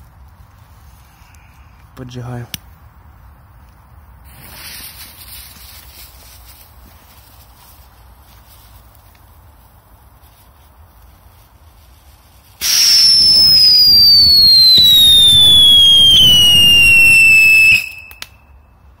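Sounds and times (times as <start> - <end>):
firework fountain hissing: 4.2 - 5.6, 12.6 - 18.2
shrill whistle sliding down: 12.6 - 18.2.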